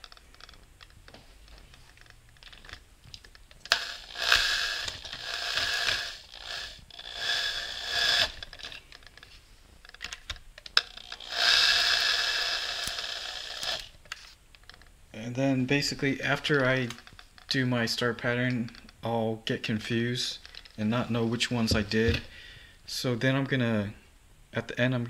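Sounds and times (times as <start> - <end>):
electric drill motor whine: 3.7 - 8.8, 10.9 - 14.0.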